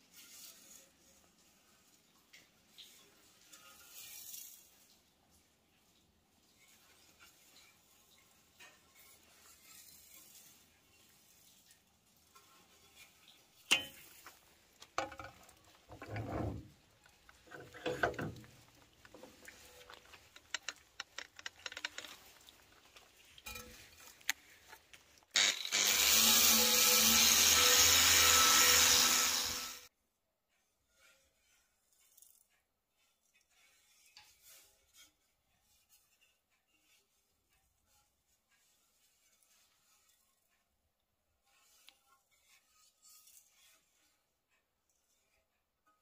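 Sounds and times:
metal pipe knocking and clicking: 0:13.7 - 0:14.1, 0:14.8 - 0:16.7, 0:17.3 - 0:22.4
electric power tool running: 0:25.4 - 0:29.9.

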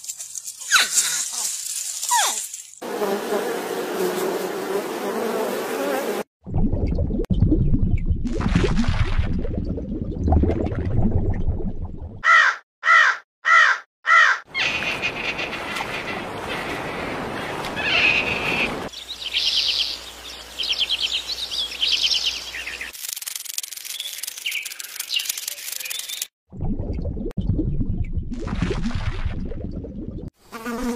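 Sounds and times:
loud bird calls: 0:12.2 - 0:23.0.

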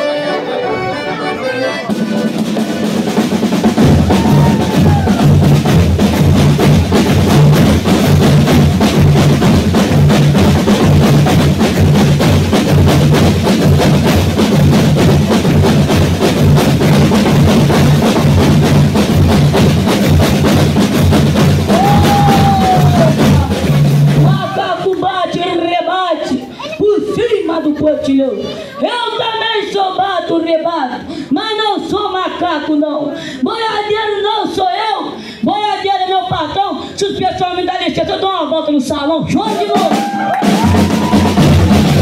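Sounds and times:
snare drum rolls: 0:01.8 - 0:24.5, 0:39.4 - 0:42.0
heavy bass drum strokes: 0:01.9 - 0:24.6, 0:39.8 - 0:42.0.

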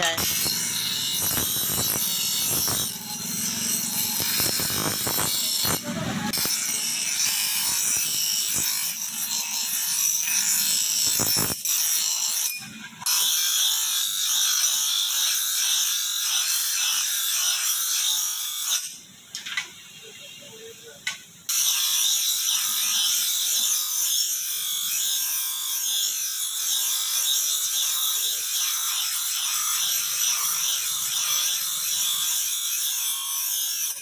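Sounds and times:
bench grinder grinding metal: 0:00.0 - 0:19.0, 0:21.5 - 0:34.0.

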